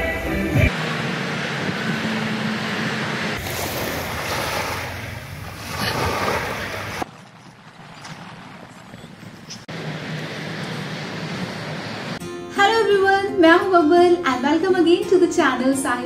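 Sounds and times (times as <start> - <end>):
outdoor ambience: 0.0 - 12.2
traffic hum: 0.0 - 12.2
waves washing onto beach: 0.8 - 7.2.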